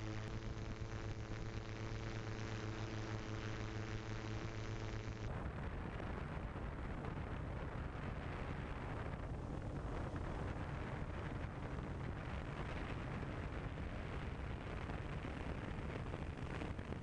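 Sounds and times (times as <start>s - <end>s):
wind buffeting microphone: 5.3s - 17.0s.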